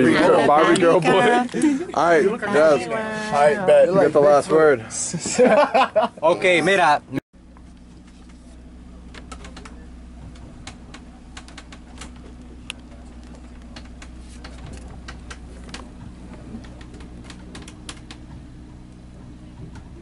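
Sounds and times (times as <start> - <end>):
ship machinery humming: 0.0 - 20.0.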